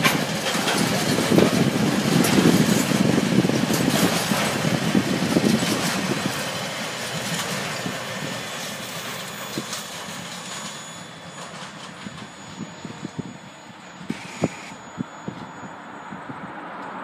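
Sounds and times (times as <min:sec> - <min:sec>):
train wheels clattering over rails: 0:00.0 - 0:13.5.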